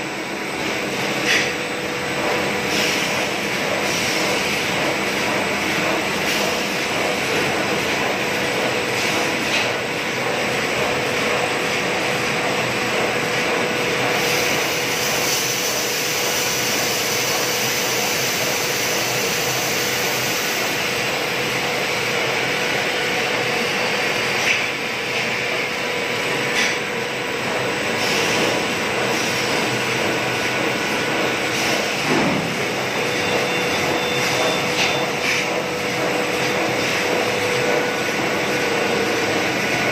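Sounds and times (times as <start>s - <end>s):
machine hum: 16.2s - 39.9s.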